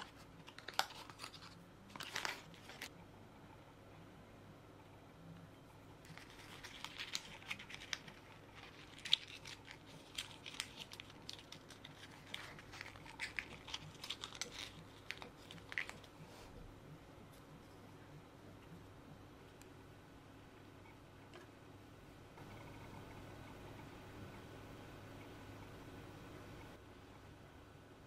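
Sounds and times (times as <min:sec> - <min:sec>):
paperboard crackling and clicking: 0:06.1 - 0:16.1.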